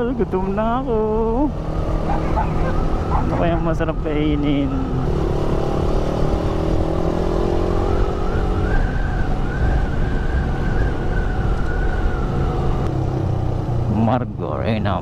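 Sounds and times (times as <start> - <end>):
motorcycle engine: 0.0 - 15.0
wind rumble on microphone: 7.8 - 13.3.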